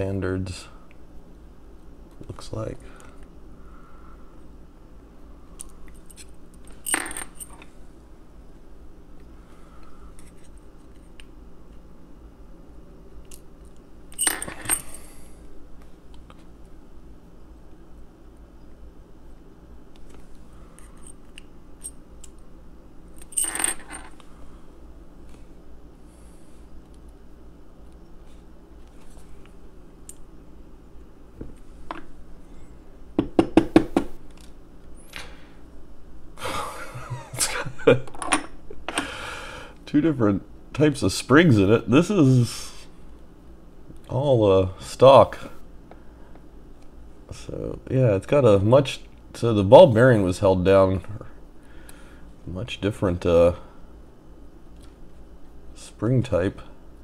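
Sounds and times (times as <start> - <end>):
metal pins clinking on hard surface: 6.1 - 7.7, 14.1 - 15.0, 23.2 - 24.2.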